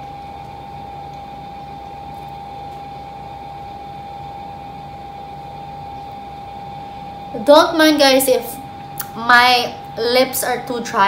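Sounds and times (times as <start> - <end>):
mid-pitched hum: 0.0 - 11.0.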